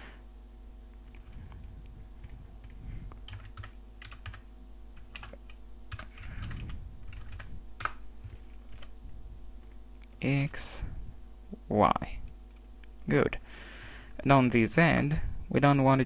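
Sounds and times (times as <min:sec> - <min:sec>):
keyboard typing: 0:02.2 - 0:04.4, 0:05.0 - 0:08.9.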